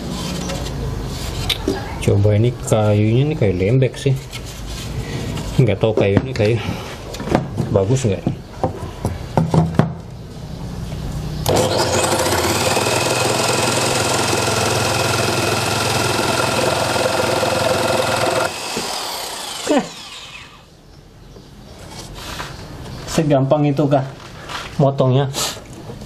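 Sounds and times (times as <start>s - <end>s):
knock: 8.6s - 10.0s
jigsaw cutting wood: 11.5s - 20.6s.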